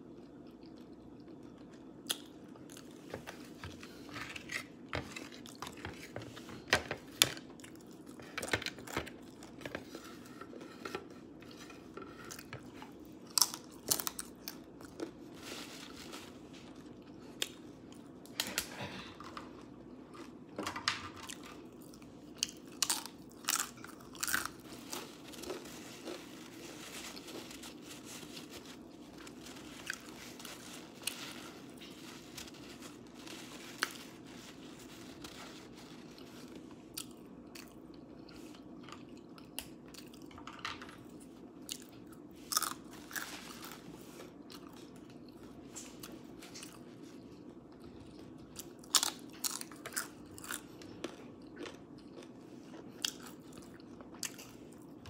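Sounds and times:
mouth chewing crunchy food: 21.2 - 27.8, 41.6 - 55.0.

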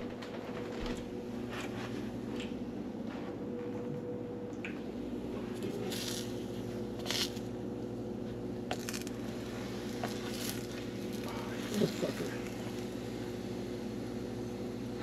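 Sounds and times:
steady low hum: 0.0 - 15.0
soft squishing and rustling: 8.7 - 12.9.

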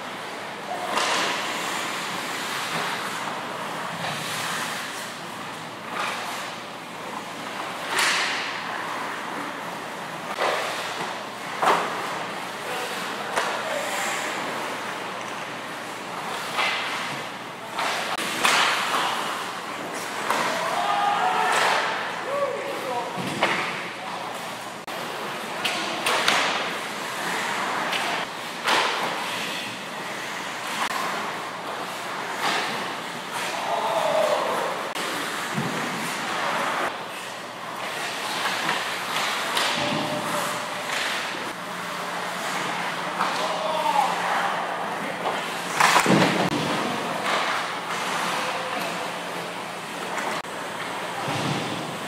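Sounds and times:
skate blades scraping ice: 0.9 - 6.6, 26.3 - 43.8
stick hitting puck: 17.8 - 19.4.

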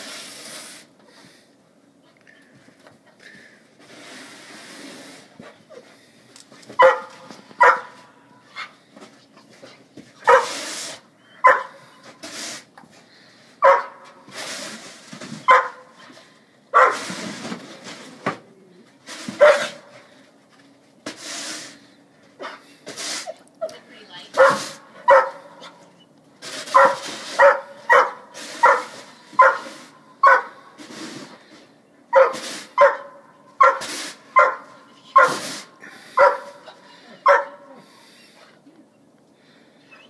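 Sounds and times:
snow shovel scraping: 3.8 - 5.6, 10.3 - 12.7, 14.2 - 15.8, 16.8 - 18.2, 19.0 - 20.1, 21.0 - 21.9, 22.8 - 23.3, 24.3 - 25.3, 26.4 - 31.6, 32.2 - 33.0, 33.6 - 34.6, 35.2 - 36.6
dog barking: 6.8 - 8.0, 10.2 - 10.6, 11.4 - 11.8, 13.6 - 14.0, 15.5 - 15.9, 16.8 - 17.0, 19.4 - 19.8, 24.4 - 25.8, 26.7 - 30.6, 32.1 - 35.4, 36.2 - 36.6, 37.2 - 37.8.

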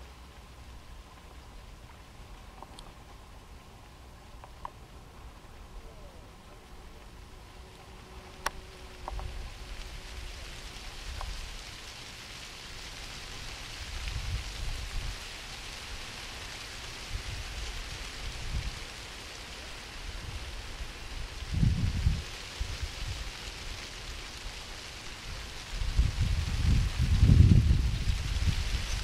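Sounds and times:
rain-like hiss: 0.0 - 29.0
wind gusts buffeting microphone: 13.4 - 15.3, 20.0 - 23.3, 25.2 - 29.0.

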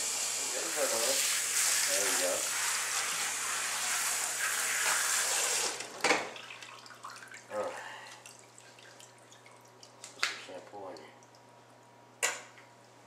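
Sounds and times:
water spraying: 0.0 - 5.8.

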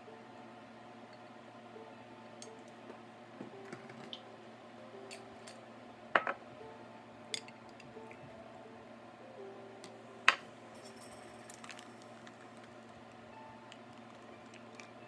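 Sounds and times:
drink pouring: 11.2 - 15.0.

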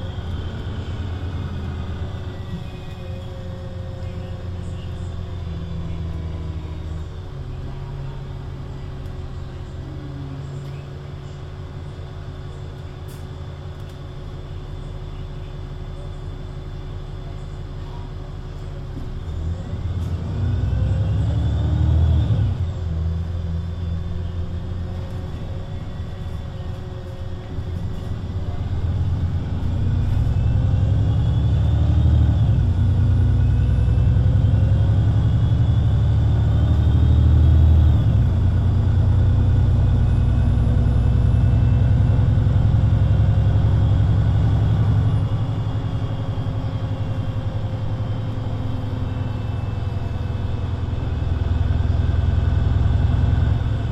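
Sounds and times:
bus diesel engine pulling away: 0.0 - 53.9.

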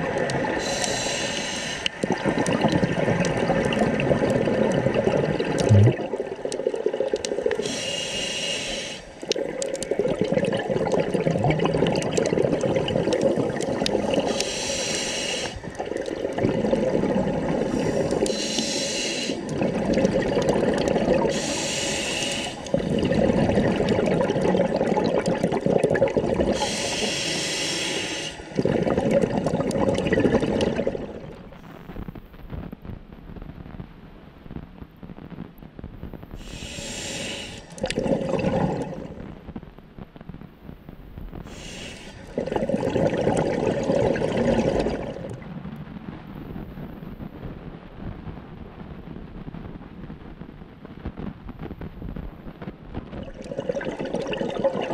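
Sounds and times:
exhaled bubbles burbling: 0.0 - 8.1, 9.0 - 32.1, 36.4 - 39.4, 41.2 - 47.2, 52.1 - 54.9
regulator breath hisses: 0.6 - 2.0, 7.6 - 9.2, 14.3 - 15.6, 17.7 - 19.5, 21.3 - 22.7, 26.5 - 28.6, 36.4 - 37.8, 41.4 - 42.4.

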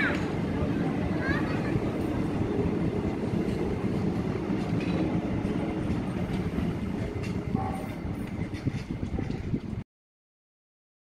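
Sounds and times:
train wheels rumbling on rails: 0.0 - 9.8
train wheel clicks: 3.4 - 9.8.

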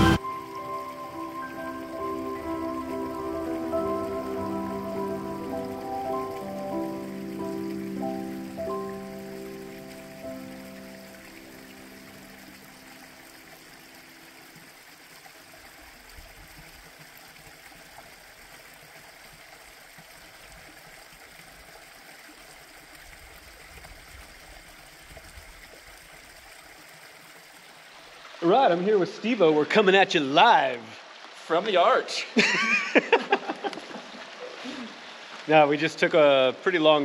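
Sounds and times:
background music: 0.0 - 12.9
creek water trickling: 0.0 - 37.0.

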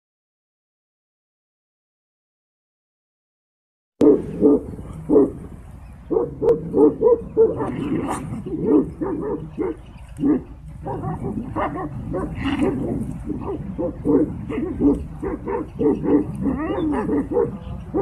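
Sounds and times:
dog barking: 4.0 - 5.4, 6.1 - 18.0.

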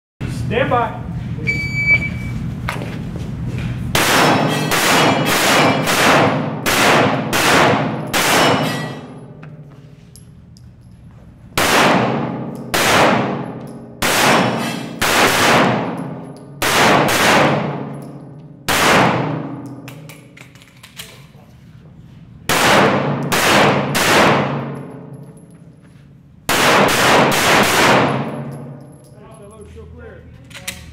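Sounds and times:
pistol shots echoing indoors: 3.9 - 9.5, 11.6 - 20.6, 22.4 - 25.5, 26.4 - 29.1.

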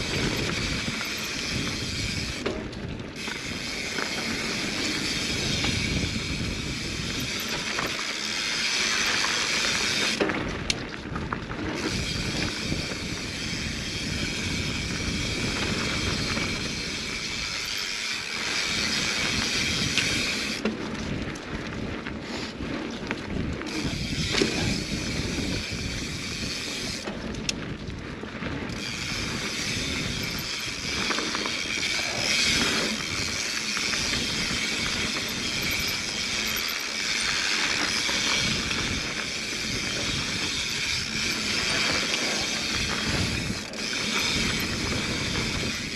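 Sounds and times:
bike rattling: 0.0 - 45.9
tyres rolling over dirt: 26.6 - 45.9.

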